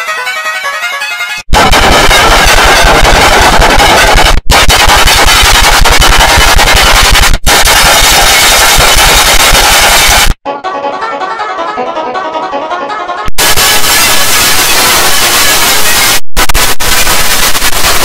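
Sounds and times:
harsh distorted crackling noise: 1.5 - 10.4, 13.4 - 18.0.

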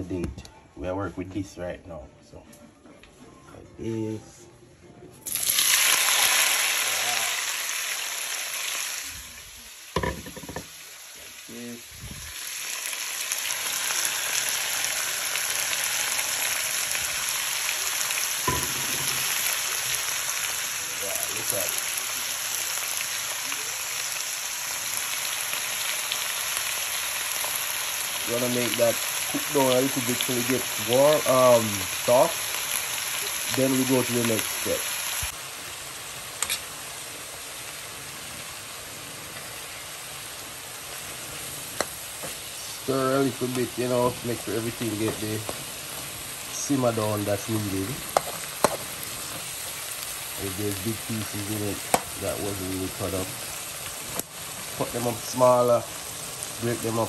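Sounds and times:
vegetables sizzling in oil: 5.2 - 57.0
knock: 10.0 - 10.7.

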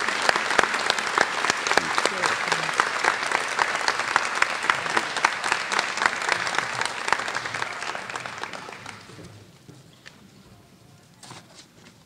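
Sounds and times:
audience applause: 0.0 - 9.4.

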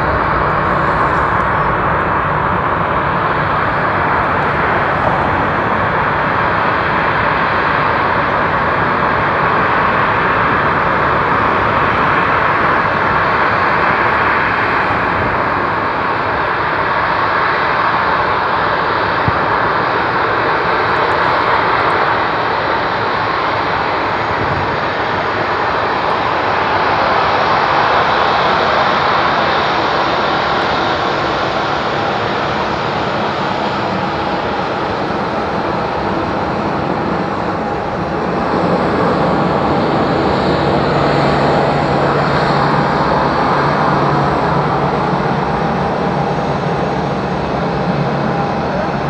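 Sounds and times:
jet engines running: 0.0 - 49.0.

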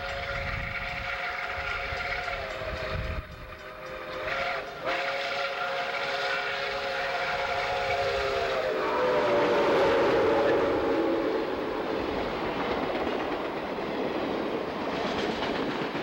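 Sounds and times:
steam whistle chord: 0.0 - 12.1
rush of passing locomotive: 0.0 - 16.0.

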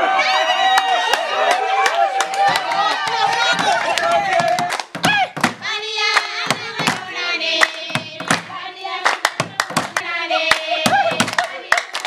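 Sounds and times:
hand clapping: 0.8 - 12.0
women singing together: 2.7 - 12.0.

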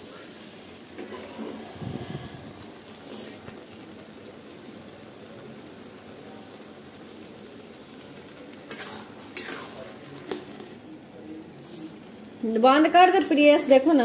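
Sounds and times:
food sizzling and bubbling: 0.0 - 14.0
metal spatula scraping pan: 8.7 - 9.8.

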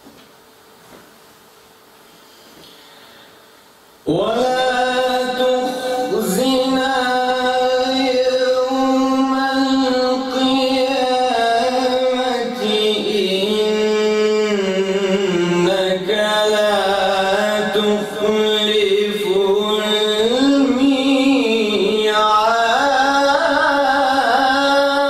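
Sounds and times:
man chanting melodically: 4.0 - 25.0.

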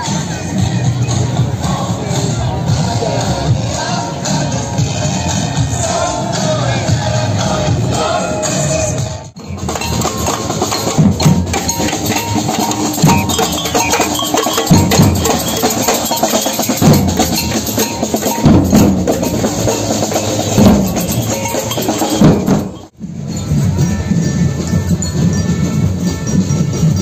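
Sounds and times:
bass drum beat: 9.4 - 23.2.

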